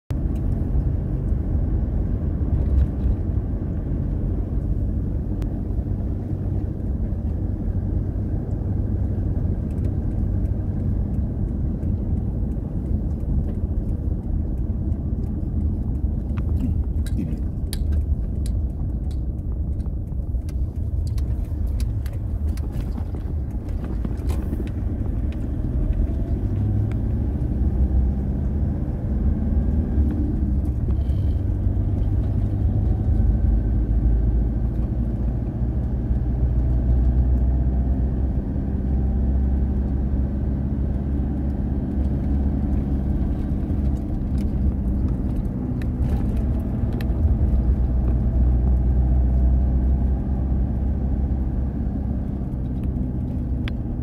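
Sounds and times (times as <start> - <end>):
engine and tyres rumbling on gravel: 0.1 - 54.0
sharp clicks: 8.4 - 27.1.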